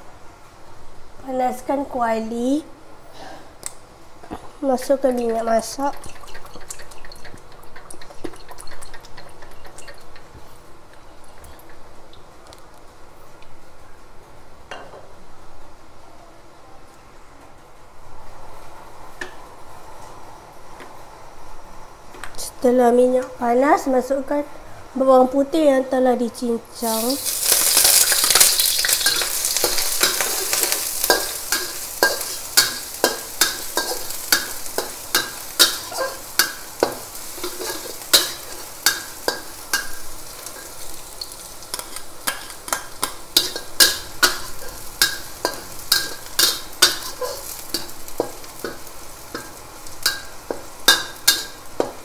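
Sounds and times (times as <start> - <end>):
garlic sizzling in hot oil: 4.6 - 10.4, 26.7 - 52.0
metal spatula scraping a wok: 27.2 - 51.6.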